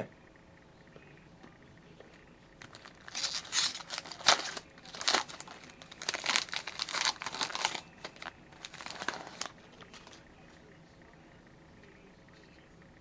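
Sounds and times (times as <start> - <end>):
wrapper tearing and crinkling: 2.6 - 10.2.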